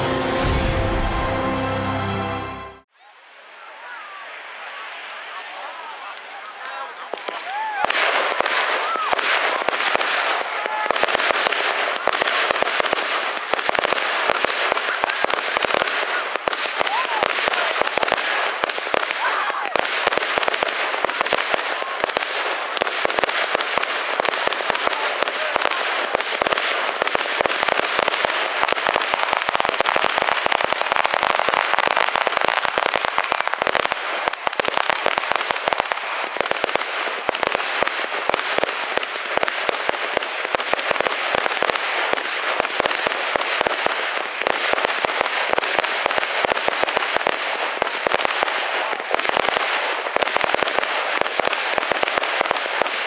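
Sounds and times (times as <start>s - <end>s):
fireworks bangs and crackling: 3.5s - 53.0s.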